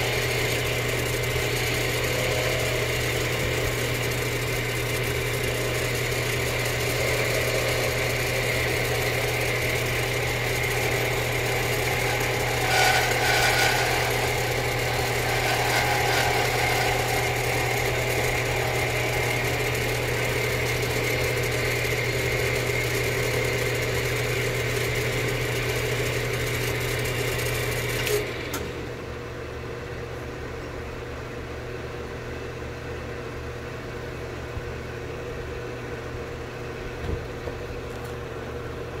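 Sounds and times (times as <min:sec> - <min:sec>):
machine motor humming: 0:00.0 - 0:29.1.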